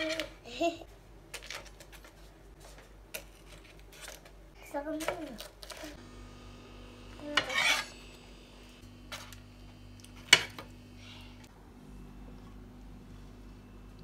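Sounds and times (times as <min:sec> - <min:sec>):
metal spatula scraping a plate: 0:07.3 - 0:08.0.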